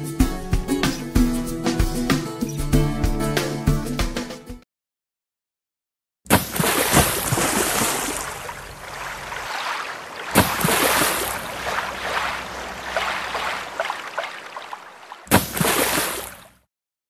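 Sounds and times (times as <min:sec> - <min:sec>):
rushing splashing water: 0:06.3 - 0:16.6.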